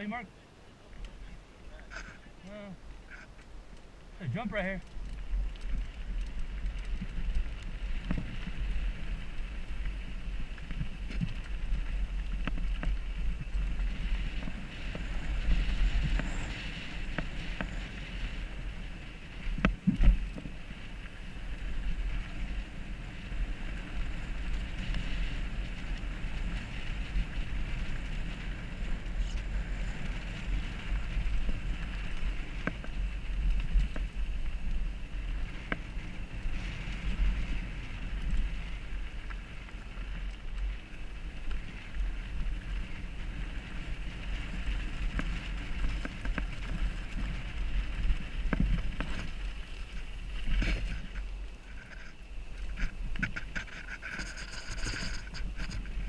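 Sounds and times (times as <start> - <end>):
wind buffeting microphone: 0.8 - 56.0
bike rattling and knocking: 4.6 - 56.0.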